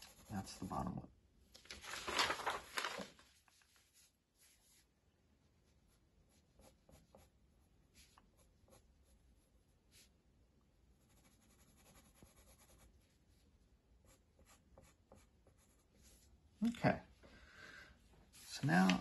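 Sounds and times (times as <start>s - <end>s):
pencil sketching on paper: 0.0s - 0.9s, 5.5s - 10.1s, 11.0s - 13.2s, 14.0s - 16.3s
drawing paper rustling: 1.5s - 7.3s, 7.9s - 10.1s, 11.0s - 16.4s, 18.1s - 19.0s.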